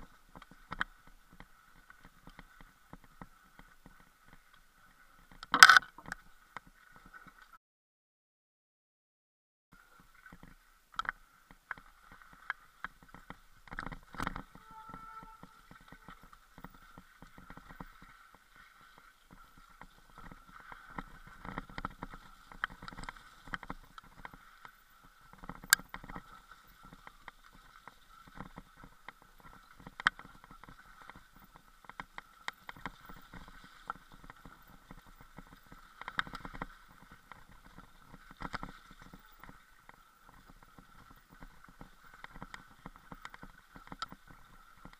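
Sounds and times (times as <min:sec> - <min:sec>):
bike knocking and rattling: 0:12.8 - 0:18.4.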